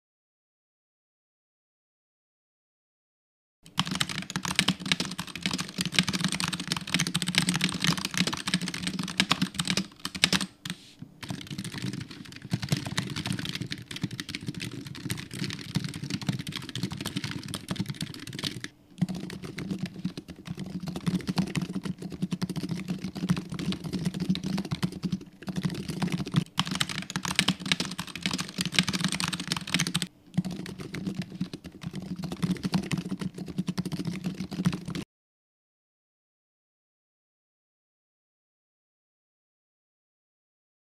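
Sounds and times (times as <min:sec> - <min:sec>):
fast keyboard typing: 0:03.7 - 0:35.0.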